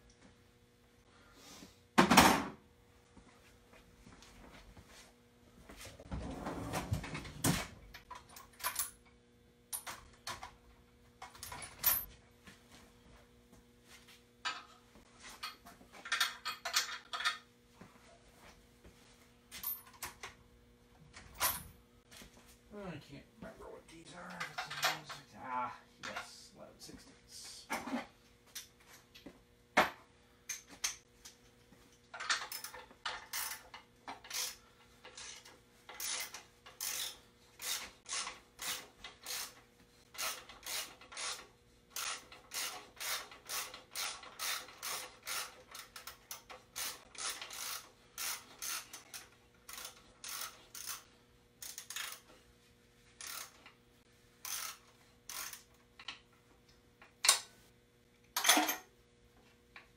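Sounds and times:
ratchet wrench clicking: 0:32.3 - 0:34.6, 0:35.2 - 0:39.6, 0:40.2 - 0:41.4, 0:42.0 - 0:51.0, 0:51.6 - 0:52.3, 0:53.2 - 0:53.6, 0:54.4 - 0:56.1.

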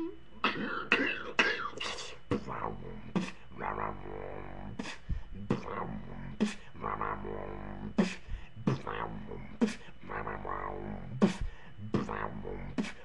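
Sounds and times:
beatboxed vocal bass wobble: 0:00.0 - 0:13.0
beatboxed snare hits: 0:11.2 - 0:12.2.

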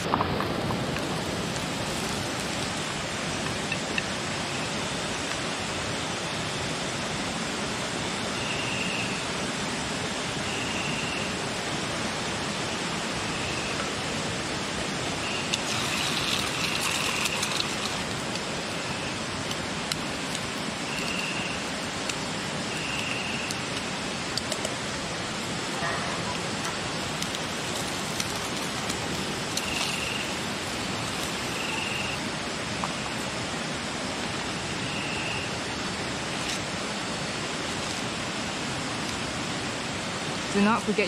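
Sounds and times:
running water rushing: 0:09.0 - 0:41.0
crackling: 0:25.8 - 0:32.2.

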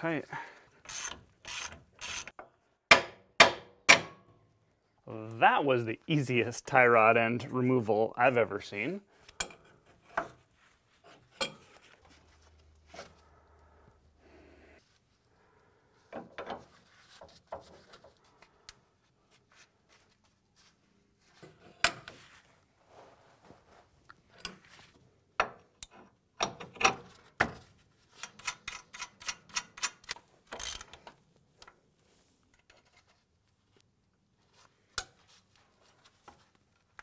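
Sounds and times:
hand ratchet clicking: 0:00.8 - 0:02.4, 0:28.2 - 0:31.1.

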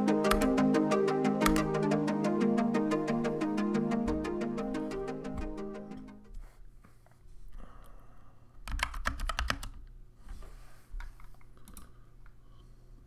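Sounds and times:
mechanical keyboard keystroke clacks: 0:08.7 - 0:09.8.

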